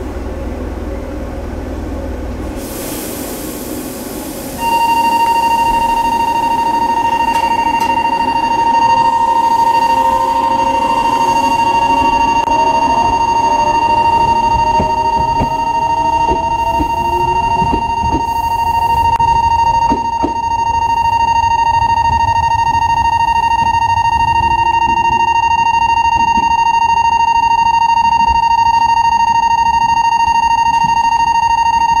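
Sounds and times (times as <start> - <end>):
train motors whining: 0.0 - 20.6
electric bell ringing: 4.6 - 32.0.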